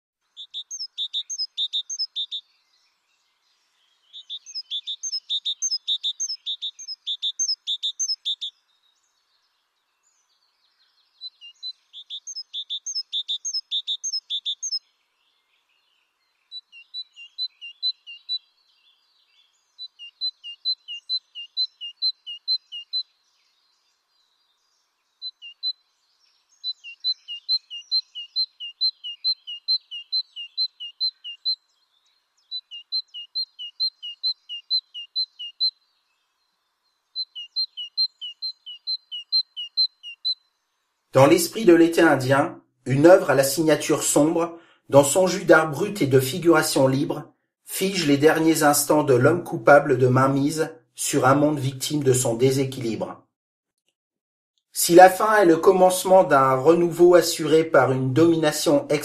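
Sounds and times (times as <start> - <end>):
songbird singing two-note phrases: 0.3 - 40.6.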